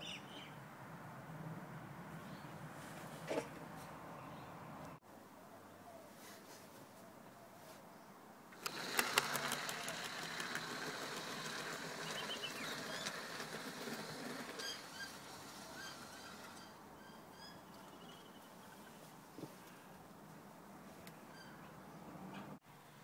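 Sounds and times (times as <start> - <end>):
model train wheel clatter: 8.6 - 16.6
model train motor whine: 8.6 - 16.7.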